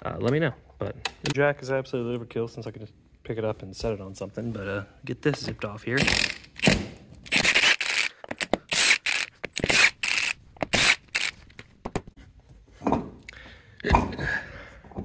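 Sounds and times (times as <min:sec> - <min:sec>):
impact wrench spinning: 0:06.0 - 0:11.6.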